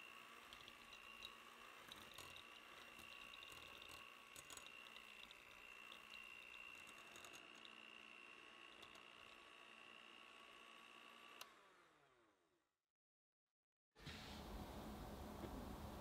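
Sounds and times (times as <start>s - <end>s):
mixer beaters clicking: 0.0s - 9.5s
hand mixer motor whine: 0.0s - 12.4s.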